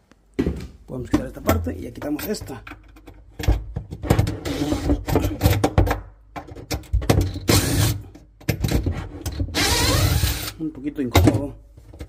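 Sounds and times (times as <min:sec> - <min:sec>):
cordless driver bursts: 0:09.6 - 0:10.6.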